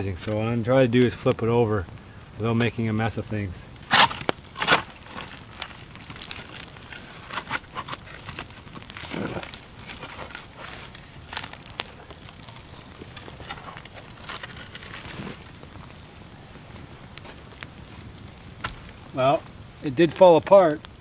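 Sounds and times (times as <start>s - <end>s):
campfire crackling: 0.0s - 21.0s
stick knocking and scraping logs: 3.8s - 15.5s.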